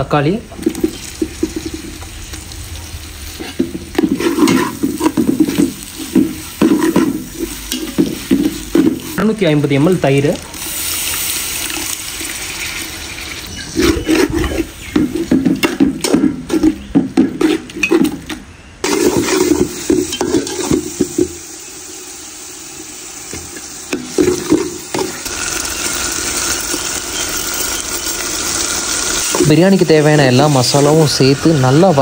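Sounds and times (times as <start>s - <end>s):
masala sizzling in oil: 0.0s - 18.0s, 18.8s - 32.0s
metal ladle scraping a pot: 3.4s - 9.0s, 13.5s - 18.2s, 18.8s - 20.8s.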